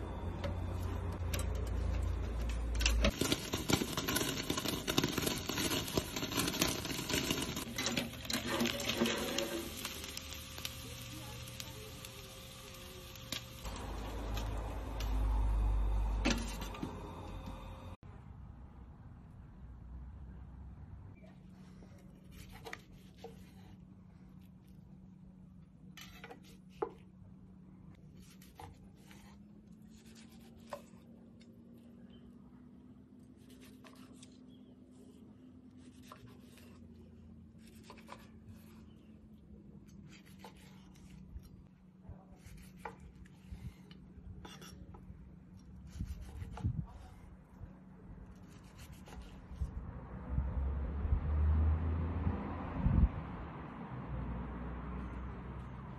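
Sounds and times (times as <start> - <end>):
low hum: 0.0 - 22.1.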